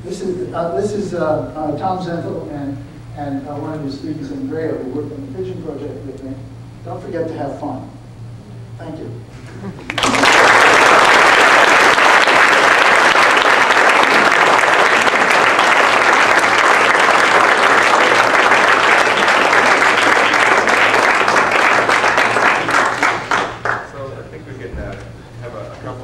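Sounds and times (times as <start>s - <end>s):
audience applauding: 9.9s - 24.0s.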